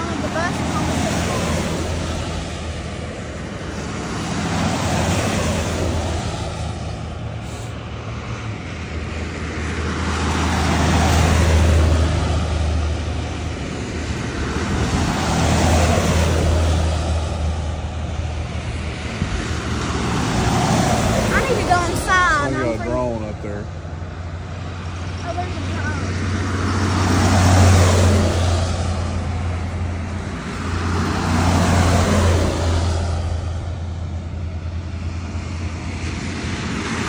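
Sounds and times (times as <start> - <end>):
buses driving past: 0.0 - 37.0
low engine hum: 0.0 - 37.0.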